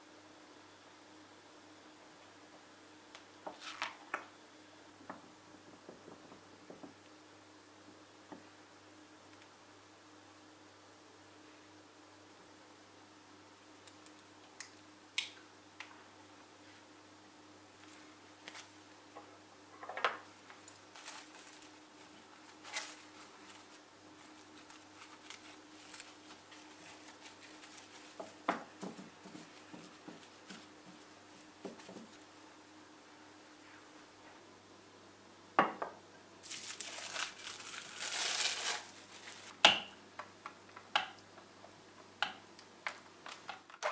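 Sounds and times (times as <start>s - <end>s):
faint steady hum: 0.0s - 43.9s
cling film crinkling: 20.4s - 31.5s, 36.4s - 39.6s.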